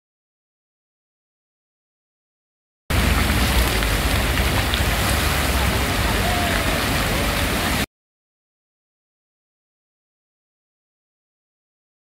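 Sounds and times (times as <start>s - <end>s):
low rumble: 2.9s - 7.8s
fountain water splashing: 2.9s - 7.9s.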